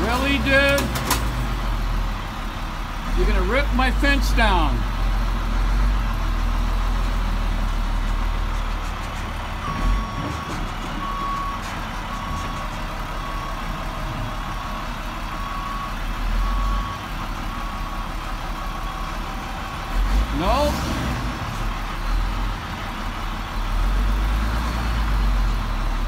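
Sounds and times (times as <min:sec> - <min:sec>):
truck engine rumbling: 0:00.0 - 0:26.0
reversing beeper: 0:09.6 - 0:19.8.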